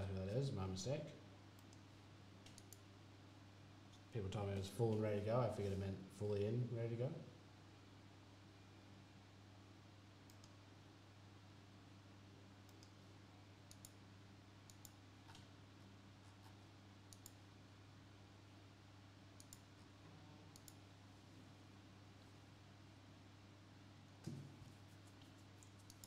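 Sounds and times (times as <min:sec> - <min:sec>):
computer mouse clicking: 0:01.6 - 0:02.9, 0:10.3 - 0:10.6, 0:12.7 - 0:13.0, 0:13.7 - 0:14.0, 0:14.6 - 0:15.5, 0:17.1 - 0:17.4, 0:19.4 - 0:19.7, 0:20.5 - 0:20.8, 0:25.2 - 0:26.0.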